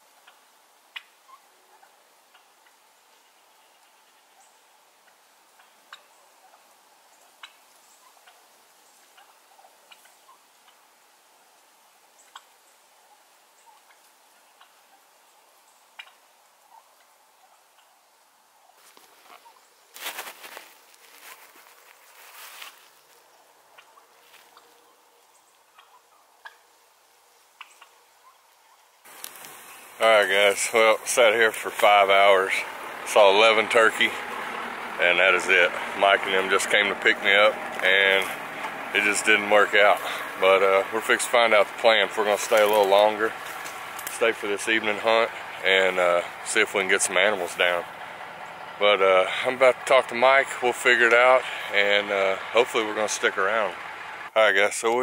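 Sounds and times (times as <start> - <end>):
turkeys clucking: 0.2 - 10.9, 12.2 - 18.0, 18.6 - 26.7, 27.6 - 54.5.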